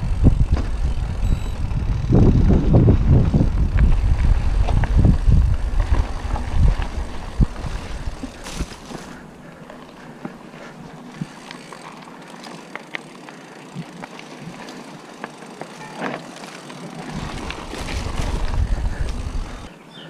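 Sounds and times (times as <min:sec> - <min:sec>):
deep rumble: 0:00.0 - 0:08.7
bike rattling and clicking: 0:00.0 - 0:19.7
bike tyres on dirt trail: 0:00.0 - 0:19.8.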